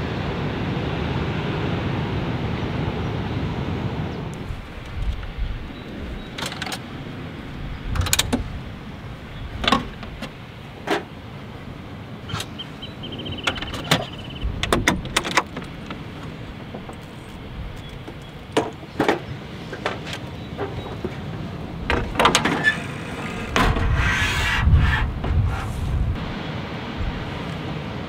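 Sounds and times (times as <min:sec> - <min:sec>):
steel table folding down: 0:21.9 - 0:24.5.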